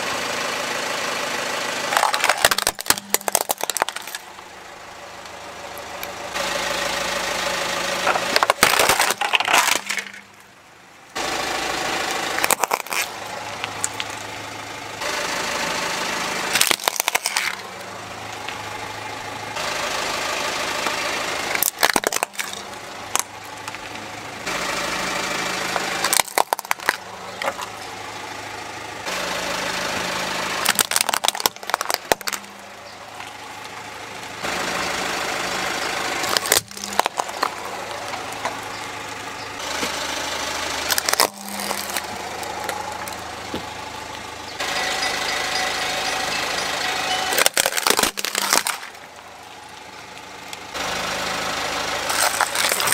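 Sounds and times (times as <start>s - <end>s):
car engine idling: 0.0s - 52.9s
tyre crushing plastic toys: 1.8s - 4.4s, 8.0s - 10.5s, 12.2s - 14.2s, 16.5s - 17.7s, 21.4s - 23.9s, 25.7s - 27.8s, 30.4s - 32.6s, 36.2s - 38.7s, 40.7s - 43.7s, 47.0s - 49.2s, 52.0s - 52.9s.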